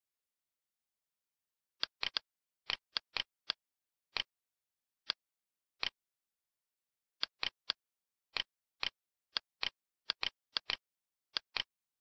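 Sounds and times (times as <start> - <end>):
computer mouse clicking: 1.8 - 3.6, 8.4 - 11.7.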